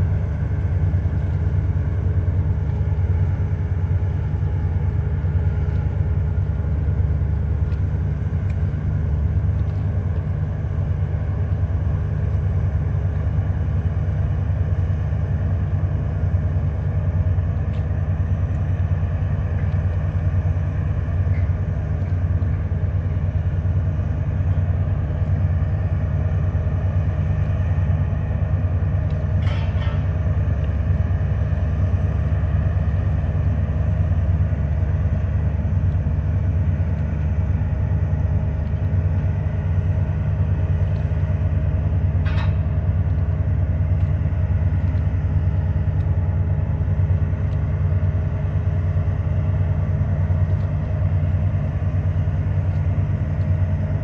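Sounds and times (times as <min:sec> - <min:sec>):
boat engines low rumble: 0:00.0 - 0:54.0.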